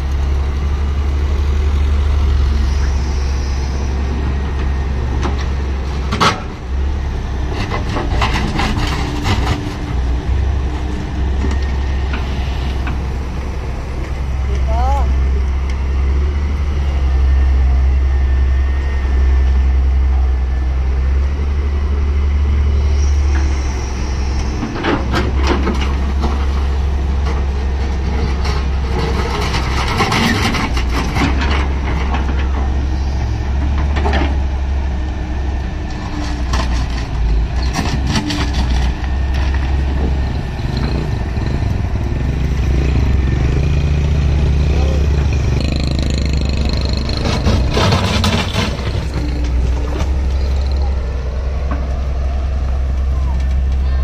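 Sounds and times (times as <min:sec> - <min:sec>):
excavator diesel engine running: 0:00.0 - 0:54.0.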